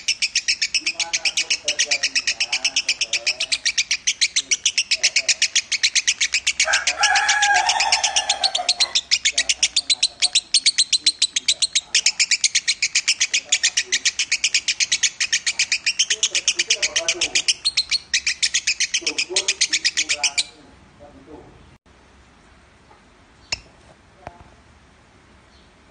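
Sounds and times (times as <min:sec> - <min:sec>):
bird trilling high chirps: 0:00.0 - 0:20.6
lower drawn-out bird call: 0:06.5 - 0:09.2.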